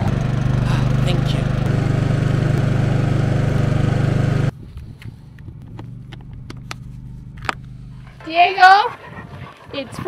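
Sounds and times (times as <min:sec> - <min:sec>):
generator engine running: 0:00.0 - 0:04.5.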